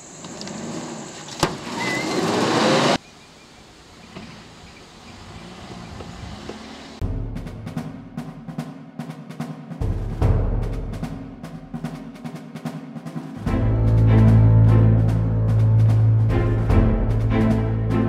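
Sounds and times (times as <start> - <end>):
rushing noise with engine whine: 0.0 - 7.0.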